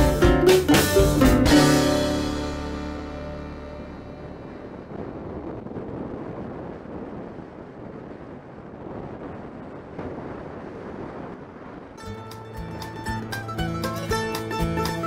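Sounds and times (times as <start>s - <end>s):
wind buffeting microphone: 1.5s - 15.0s
muffled motorcycle riding noise: 3.0s - 13.3s.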